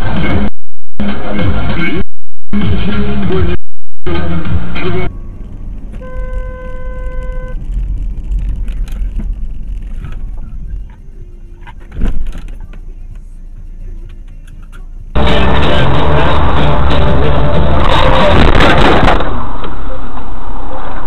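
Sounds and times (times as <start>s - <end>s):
road and engine rumble: 0.0s - 21.0s
car horn: 5.9s - 7.6s.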